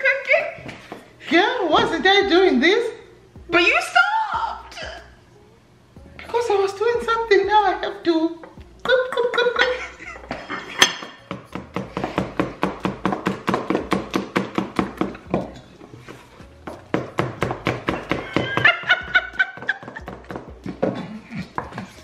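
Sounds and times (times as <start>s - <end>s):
person laughing: 8.9s - 10.9s, 18.0s - 20.4s
knife chopping on cutting board: 11.0s - 15.5s, 16.7s - 18.7s.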